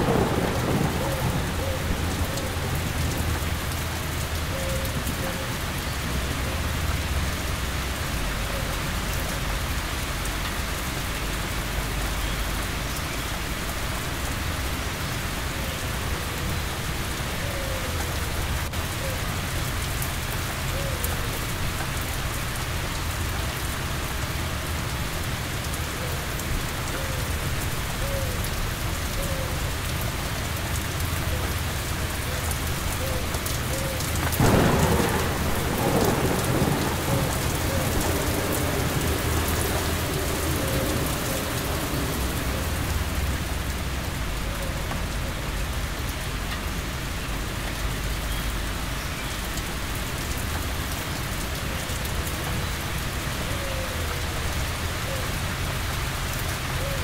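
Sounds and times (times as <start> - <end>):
thunderclap rumbling: 0.0 - 4.2, 33.6 - 45.2
steady rain falling: 0.0 - 57.0.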